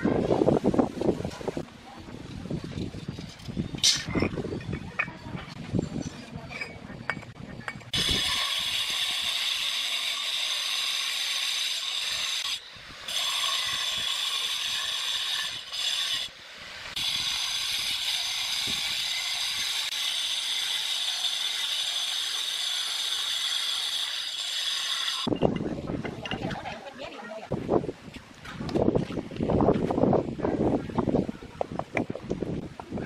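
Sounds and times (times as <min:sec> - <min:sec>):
angle grinder cutting stone: 0:07.9 - 0:25.3.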